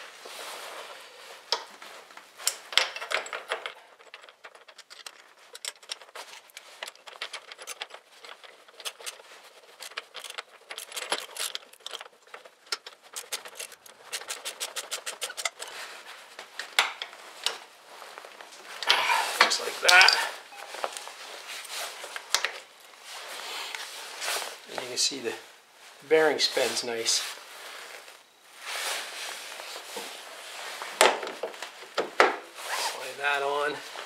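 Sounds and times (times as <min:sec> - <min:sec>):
metal parts and tools clinking: 0:02.4 - 0:16.0, 0:18.7 - 0:22.8
fast run of clicks: 0:09.8 - 0:15.7.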